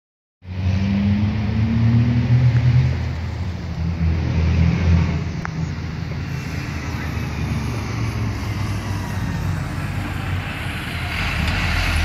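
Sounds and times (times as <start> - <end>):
diesel locomotive rumble: 2.9 - 12.0.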